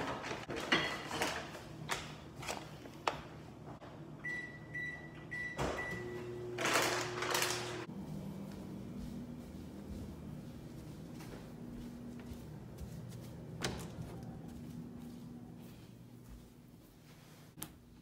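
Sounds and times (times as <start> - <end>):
microwave humming: 1.2 - 16.2
microwave keypad beeps: 4.2 - 6.4.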